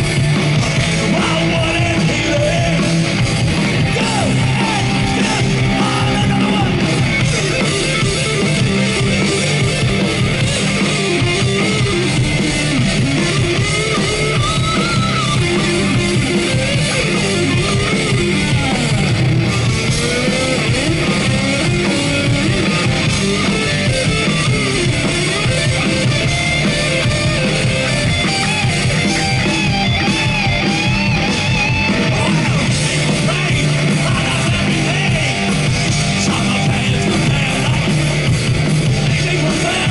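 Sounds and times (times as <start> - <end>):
bass guitar: 0.0 - 39.9
distorted electric guitars: 0.0 - 39.9
drum kit: 0.0 - 39.9
lead guitar with pitch bends: 0.0 - 39.9.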